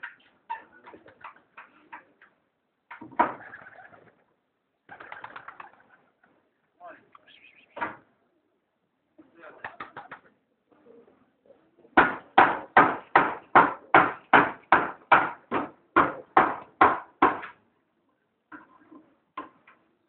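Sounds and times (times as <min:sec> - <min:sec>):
sharp knocks: 0:12.0 - 0:17.6.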